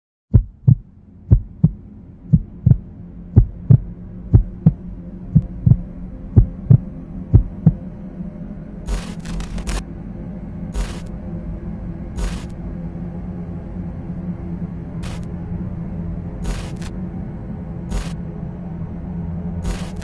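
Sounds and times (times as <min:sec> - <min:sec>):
heartbeat thumps: 0:00.3 - 0:07.8, 0:08.9 - 0:09.8, 0:10.8 - 0:11.1, 0:12.2 - 0:12.5, 0:16.4 - 0:16.9, 0:17.9 - 0:18.2, 0:19.6 - 0:20.0
low drone: 0:00.4 - 0:20.0
static hiss: 0:08.9 - 0:09.8, 0:10.8 - 0:11.1, 0:12.2 - 0:12.5, 0:15.0 - 0:15.3, 0:16.4 - 0:16.9, 0:17.9 - 0:18.2, 0:19.6 - 0:20.0.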